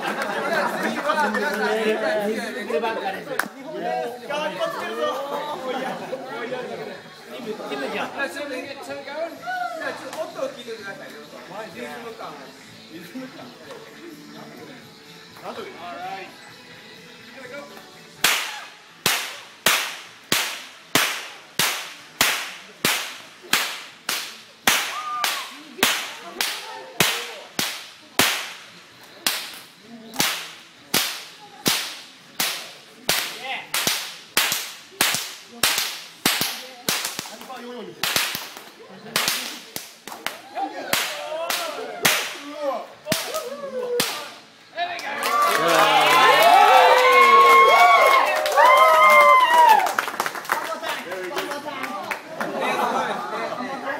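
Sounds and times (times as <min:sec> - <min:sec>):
stockwhips cracking: 0:18.2 - 0:44.4.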